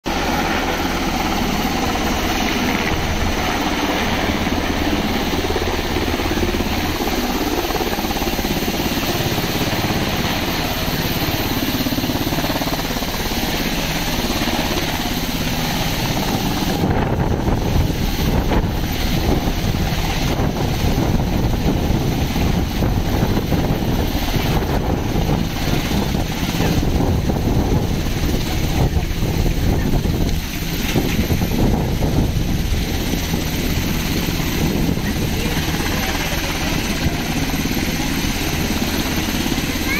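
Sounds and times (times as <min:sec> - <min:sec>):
helicopter rotors and engines: 0:00.0 - 0:39.9
rotor wash buffeting microphone: 0:00.1 - 0:39.9.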